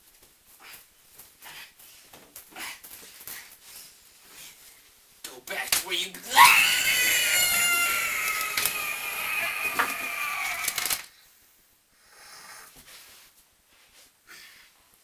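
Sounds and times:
person screaming: 6.2 - 11.0.

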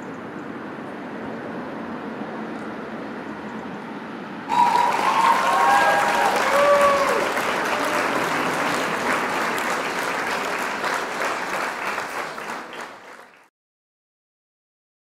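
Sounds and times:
crowd applauding: 4.5 - 13.5.

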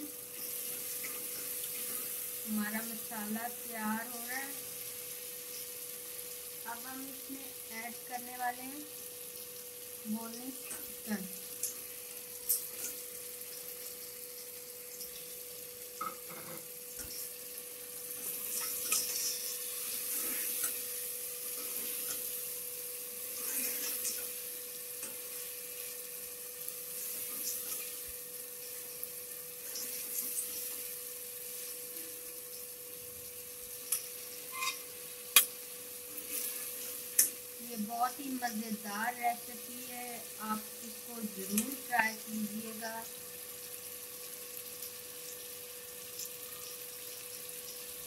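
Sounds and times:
chicken sizzling in hot oil: 0.0 - 48.0
spoon scraping a metal pot: 18.5 - 20.8, 33.9 - 34.9.

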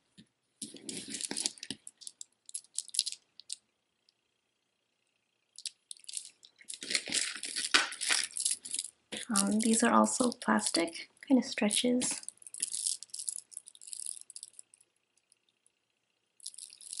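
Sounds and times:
plastic beads clicking and rattling: 0.6 - 3.6, 5.6 - 15.4, 16.4 - 17.0.

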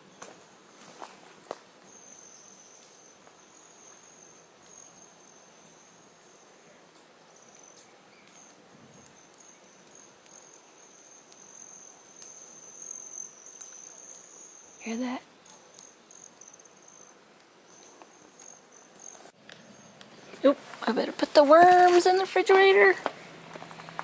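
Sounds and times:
high-pitched insect trill: 1.9 - 6.6, 7.3 - 20.5
faint ticks: 5.6 - 14.3, 15.4 - 20.1.

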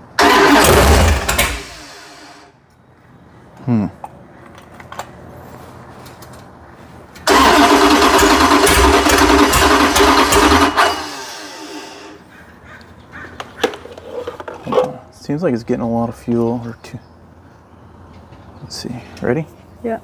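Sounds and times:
engine starting and running loudly: 0.0 - 2.5, 7.2 - 12.2.

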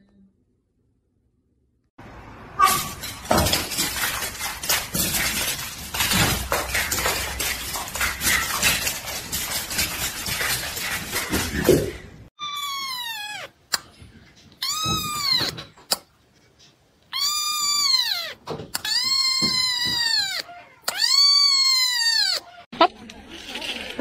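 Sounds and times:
dog and cat scuffling on tile: 2.6 - 12.0
cat meow: 12.4 - 13.6, 14.6 - 15.6, 17.1 - 22.6.

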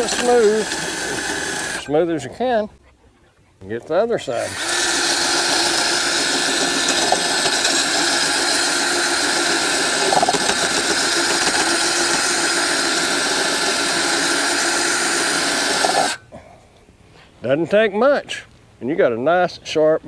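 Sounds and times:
drill motor hum: 0.0 - 1.9, 4.4 - 16.2
drill grinding blade whine: 0.0 - 2.0, 4.4 - 16.2.

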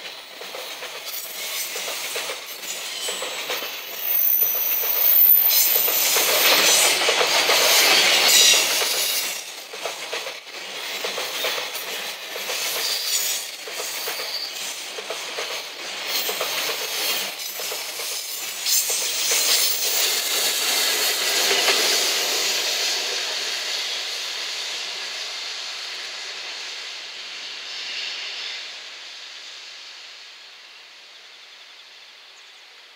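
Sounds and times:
train wheels clattering on rails: 0.0 - 26.9
hiss of steel on rail: 0.0 - 32.9.

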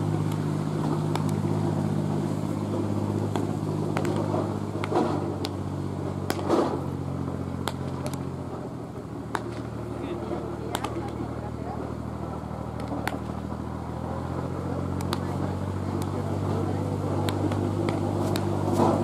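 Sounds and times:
low mechanical hum: 0.0 - 19.0
baseballs smacking into gloves: 0.3 - 1.5, 3.2 - 5.6, 6.2 - 6.8, 7.6 - 8.3, 9.3 - 9.8, 10.6 - 11.3, 12.7 - 13.4, 15.0 - 16.2, 17.2 - 19.0.

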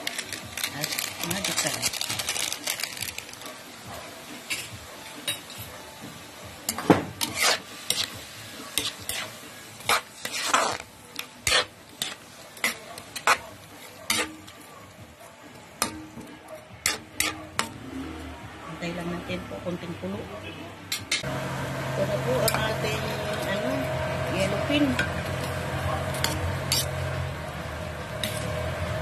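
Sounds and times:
vegetables sizzling: 0.0 - 14.8, 20.9 - 29.0
spatula scraping and knocking pan: 6.7 - 14.5, 24.8 - 27.0.

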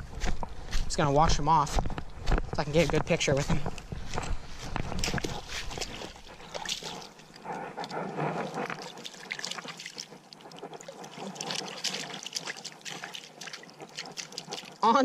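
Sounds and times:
water splashing and trickling: 4.9 - 15.0.

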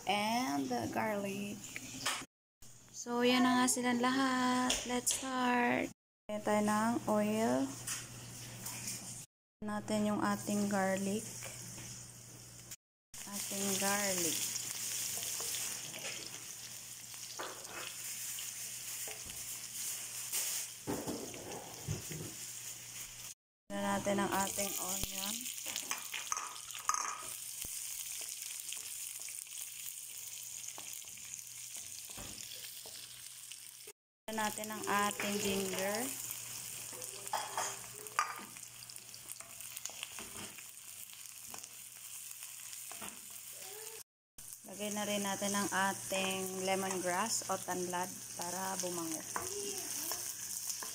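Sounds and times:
garlic sizzling in oil: 10.2 - 50.9
spatula scraping a wok: 17.5 - 23.3.

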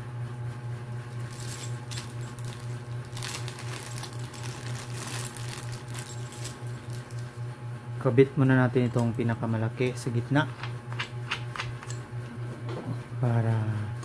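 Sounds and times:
steady low hum: 0.0 - 14.0
plastic bag crinkling: 1.2 - 7.4.

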